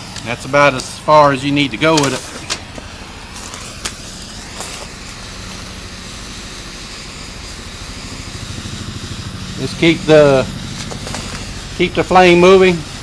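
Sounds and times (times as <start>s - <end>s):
propane torch hissing: 0.0s - 13.0s.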